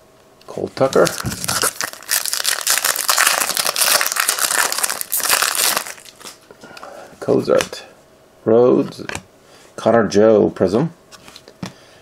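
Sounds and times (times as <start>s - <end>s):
foil wrapper crinkling: 0.8s - 6.4s.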